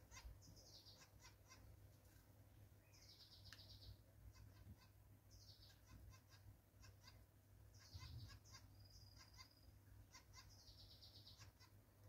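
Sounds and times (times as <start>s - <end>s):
songbirds chirping and trilling: 0.0s - 12.0s.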